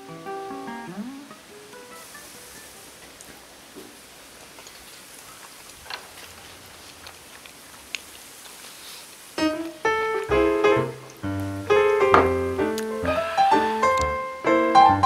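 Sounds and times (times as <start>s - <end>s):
piano music: 0.0s - 2.1s, 9.4s - 15.0s.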